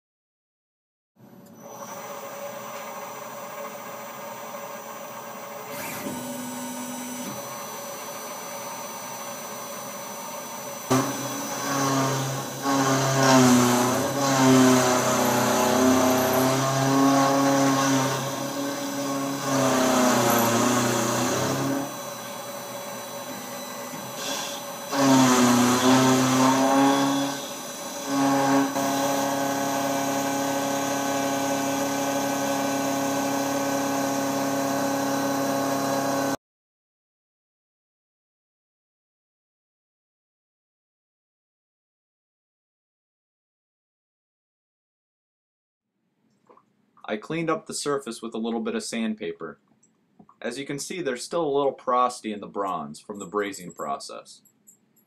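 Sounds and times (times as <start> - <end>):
milling spindle whine: 1.6 - 36.4.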